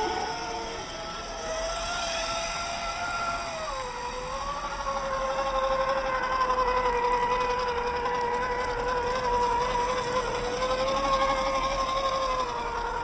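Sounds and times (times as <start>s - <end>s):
electric motor and gears whining: 0.0s - 13.0s.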